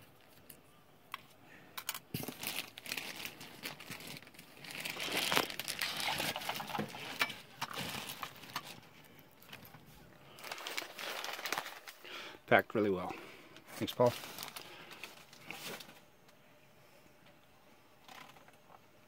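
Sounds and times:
packing wrap crinkling: 1.8 - 12.2, 13.6 - 16.0.

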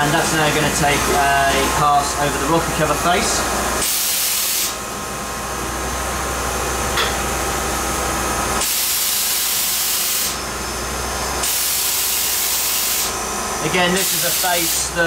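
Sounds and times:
steady machine hum: 0.0 - 15.0
hissing coolant spray: 3.8 - 4.8, 8.6 - 10.4, 11.4 - 13.2, 13.8 - 15.0
milling machine cutting metal: 11.2 - 15.0.

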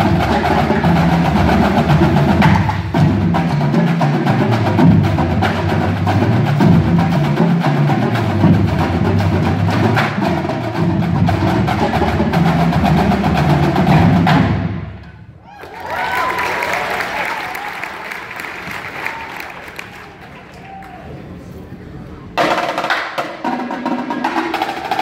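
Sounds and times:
marching drumline: 0.0 - 15.2, 22.4 - 25.0.

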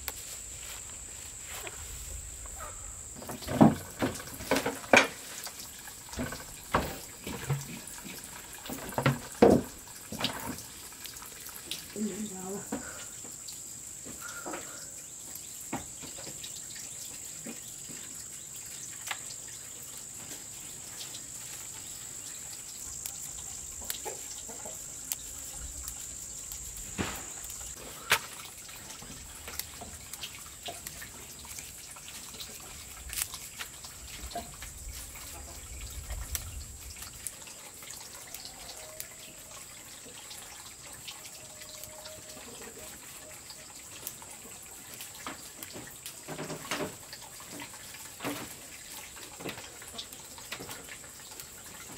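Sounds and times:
water trickling into plastic basin: 2.3 - 51.9
leaves snapping from stems: 33.1 - 33.7.

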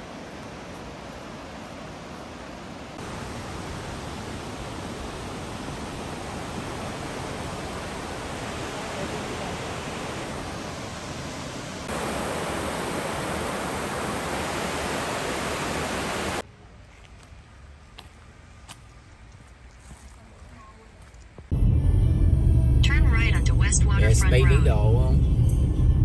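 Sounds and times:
creek water rushing: 0.0 - 16.4.

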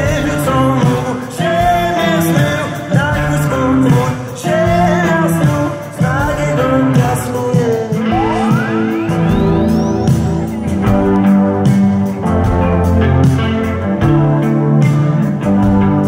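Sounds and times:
man singing: 0.0 - 9.5
live rock band playing: 0.0 - 16.0.

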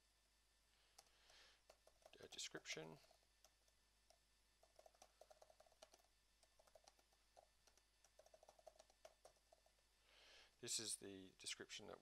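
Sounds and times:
computer keyboard typing: 1.0 - 9.8.

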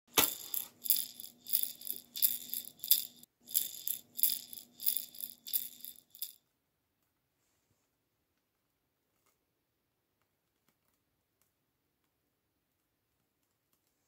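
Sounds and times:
hand rattle shaken: 0.1 - 6.4.

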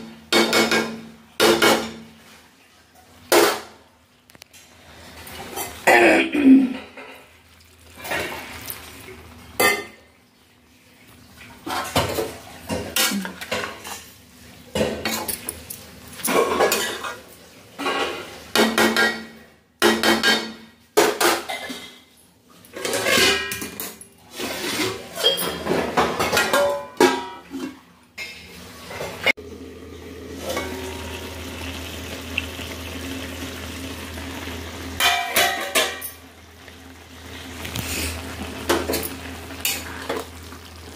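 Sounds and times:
metal spoon scraping a pan: 24.3 - 29.2.

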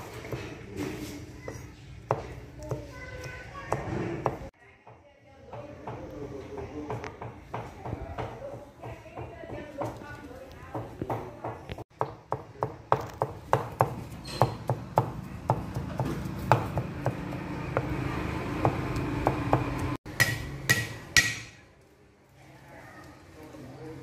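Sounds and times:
cleaver chopping on wooden block: 18.6 - 21.6.

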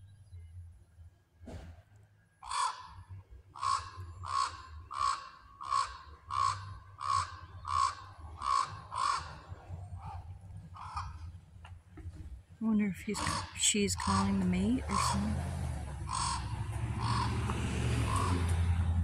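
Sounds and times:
raven giving short calls: 2.4 - 11.4, 16.1 - 17.4.

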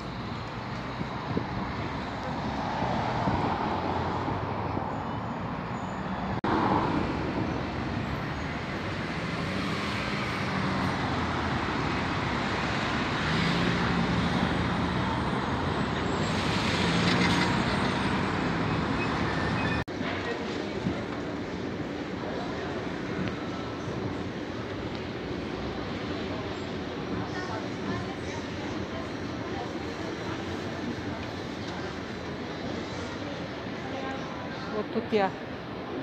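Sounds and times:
cars and vans driving past: 0.0 - 20.0.

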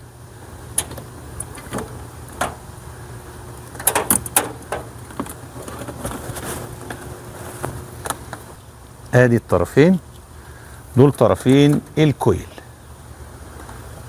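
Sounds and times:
low background hum: 0.0 - 14.0
wires rustling and clicking: 3.6 - 8.6.

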